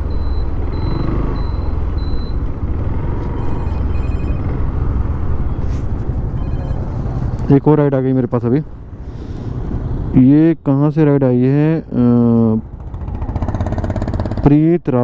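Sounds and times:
phone electronic chiming: 0:00.0 - 0:02.4, 0:03.3 - 0:04.8, 0:06.3 - 0:07.4
motorcycle engine: 0:00.0 - 0:07.5, 0:11.8 - 0:14.8.

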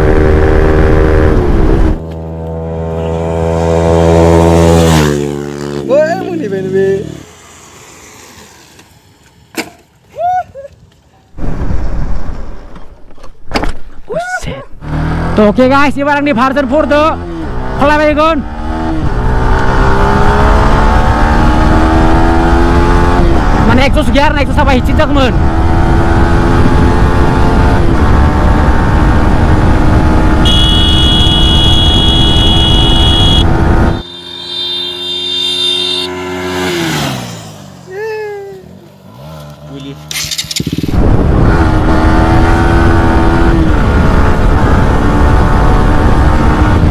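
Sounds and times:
distant motorcycle engine: 0:00.0 - 0:10.1, 0:14.8 - 0:46.9
wind rushing over microphone: 0:10.5 - 0:13.0, 0:18.4 - 0:30.4, 0:40.6 - 0:46.9
motorcycle engine running: 0:25.3 - 0:46.9.

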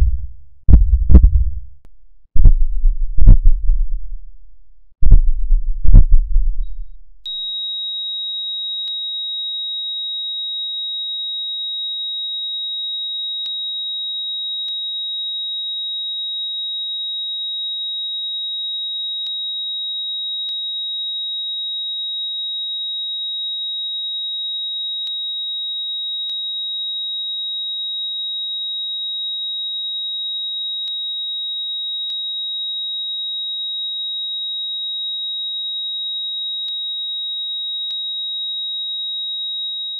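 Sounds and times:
heart monitor flatline tone: 0:00.0 - 0:01.7, 0:02.4 - 0:04.1, 0:05.0 - 0:06.9
deep heartbeat thuds: 0:00.0 - 0:01.8, 0:02.4 - 0:04.2, 0:05.0 - 0:06.9.

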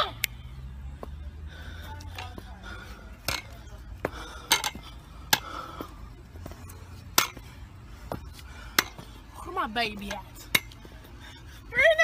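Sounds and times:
walking stick and shoes tapping concrete: 0:03.2 - 0:11.0.

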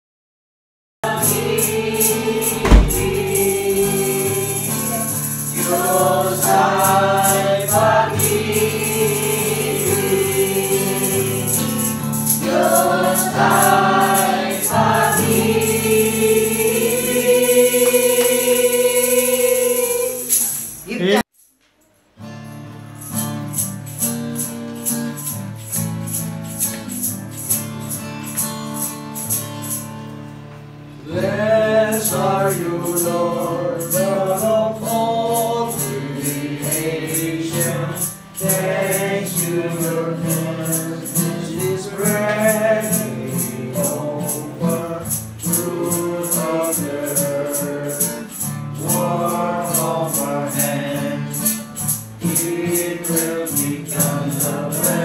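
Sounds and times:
group singing worship song: 0:01.0 - 0:20.8, 0:31.0 - 0:55.0
acoustic guitar chords: 0:01.1 - 0:21.0, 0:22.2 - 0:55.0
high rattle keeping beat: 0:01.1 - 0:21.0, 0:31.9 - 0:55.0.

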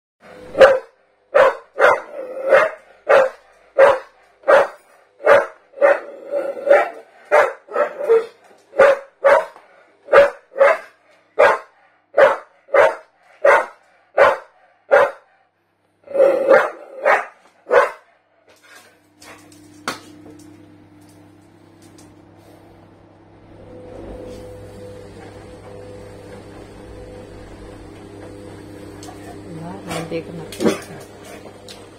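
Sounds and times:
dog barking: 0:00.5 - 0:15.3, 0:16.2 - 0:18.1.

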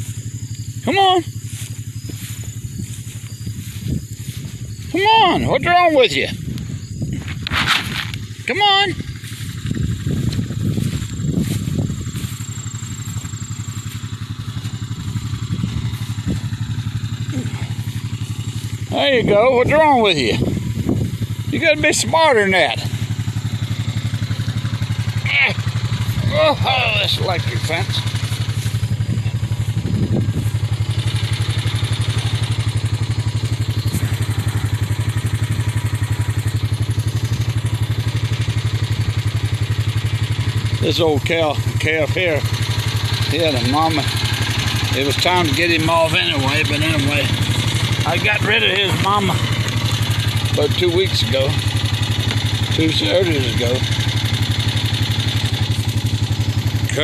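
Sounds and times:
engine idling: 0:00.0 - 0:57.0.

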